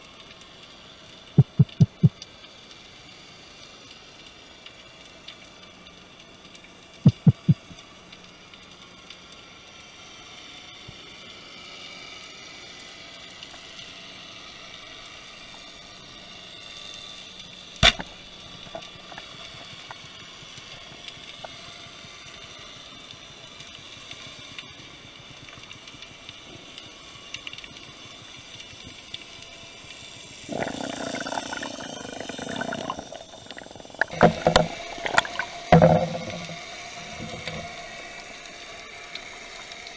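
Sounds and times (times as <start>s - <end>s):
underwater hiss: 29.3s - 39.9s
churning water rush: 30.5s - 37.8s.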